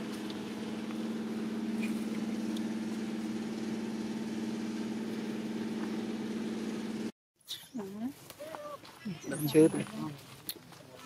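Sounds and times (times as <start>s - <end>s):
engine idling hum: 0.0s - 7.1s.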